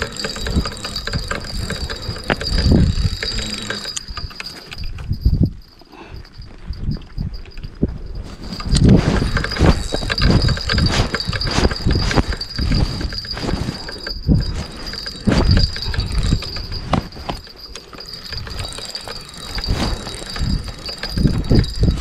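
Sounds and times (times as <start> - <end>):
clothing rustling on microphone: 6.4 - 22.0.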